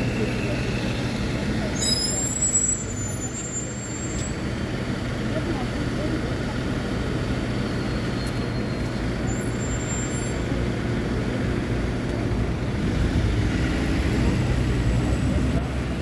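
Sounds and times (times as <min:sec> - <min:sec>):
diesel engine idling: 0:00.0 - 0:09.3
street traffic: 0:00.0 - 0:16.0.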